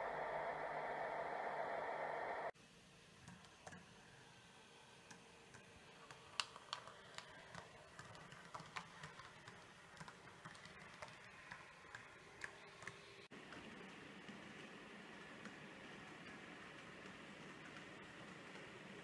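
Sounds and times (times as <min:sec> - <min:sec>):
model train wheels clicking: 0:06.0 - 0:19.0.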